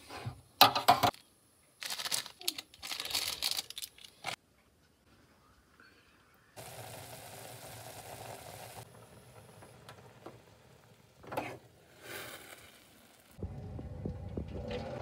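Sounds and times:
noodles bubbling in saucepan: 6.6s - 13.4s
rumbling noise: 13.0s - 15.0s.

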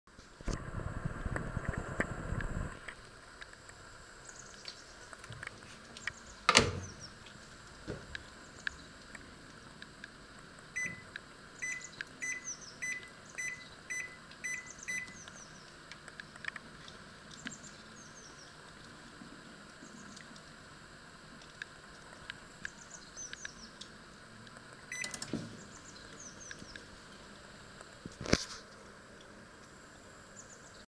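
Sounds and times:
microwave door banging shut: 6.5s - 7.0s
microwave beep: 10.8s - 15.3s, 24.9s - 25.3s.

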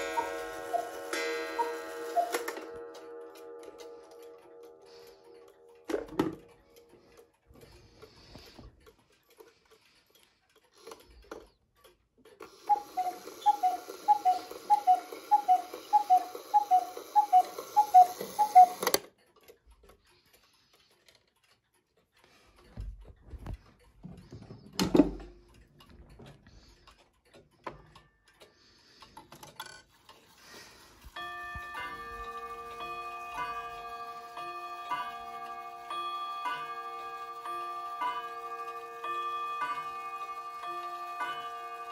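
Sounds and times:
cuckoo clock calls: 0.0s - 6.0s, 12.4s - 19.1s, 30.3s - 41.9s
wall clock chime rods struck: 0.0s - 6.6s, 31.2s - 41.9s
mechanical clocks ticking: 0.0s - 41.9s.

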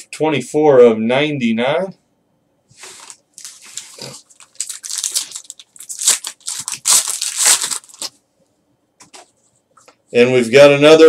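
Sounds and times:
foil wrapper tearing and crinkling: 3.0s - 8.2s.

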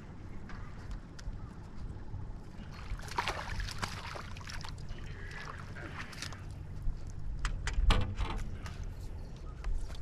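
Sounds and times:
fish splashing at water surface: 2.8s - 6.4s.

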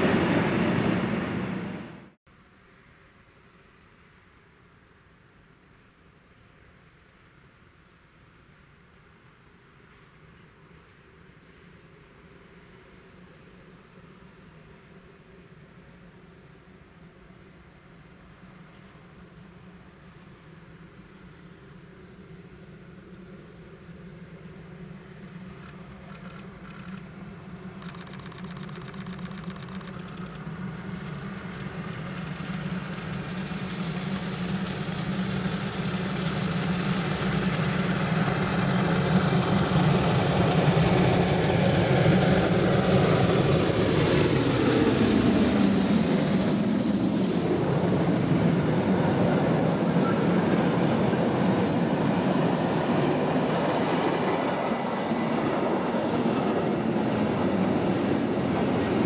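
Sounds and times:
steam locomotive passing: 0.0s - 2.2s, 9.7s - 59.0s
freight wagons rolling on rails: 27.8s - 41.3s.

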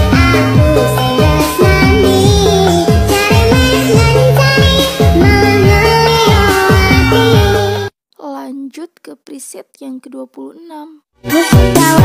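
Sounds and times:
electronic melody line: 0.0s - 7.9s.

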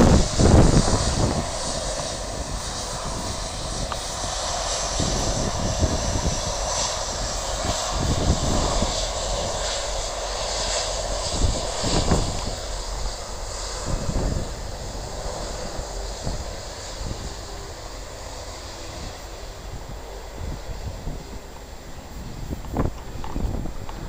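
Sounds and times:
jet engines running: 0.0s - 24.0s
wind buffeting microphone: 0.0s - 24.0s.

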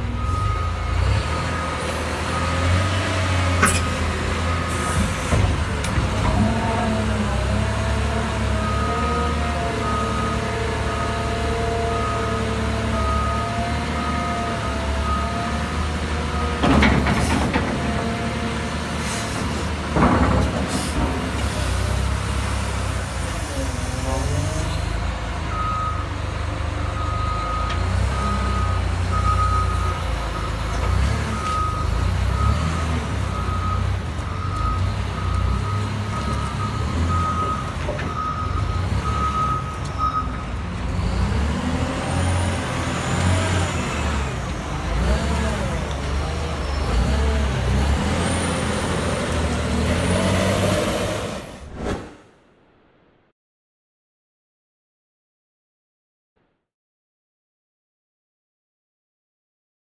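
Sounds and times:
reversing alarm beeping: 0.1s - 2.8s, 8.6s - 15.6s, 25.5s - 26.2s, 26.9s - 30.7s, 31.3s - 40.5s.

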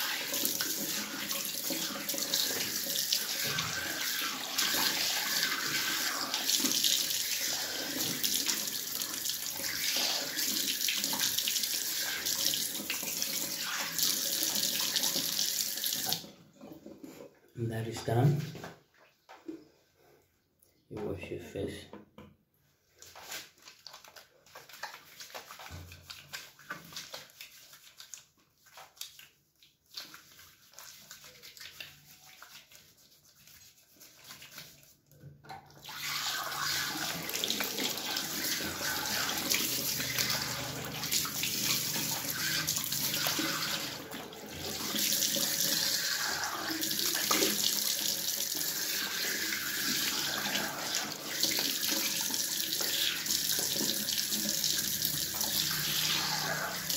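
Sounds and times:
tap water running into basin: 0.0s - 16.9s, 35.2s - 56.9s
wet soapy hands rubbing: 22.9s - 35.2s, 35.9s - 56.9s.

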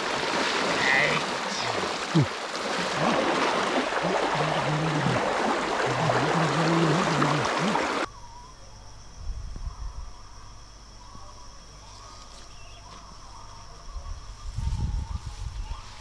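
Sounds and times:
river water rushing around legs: 0.0s - 8.1s
high insect buzz: 0.4s - 11.1s.

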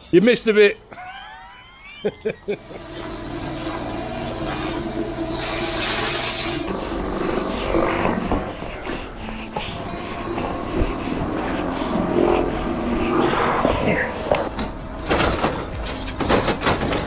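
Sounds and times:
motor droning: 2.6s - 15.6s
hiss: 3.5s - 14.4s.

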